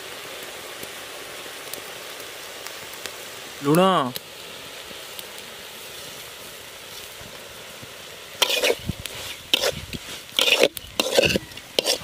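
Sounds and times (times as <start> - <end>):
shrimp sizzling in a pan: 0.0 - 12.0
spatula scraping a pan: 8.4 - 12.0.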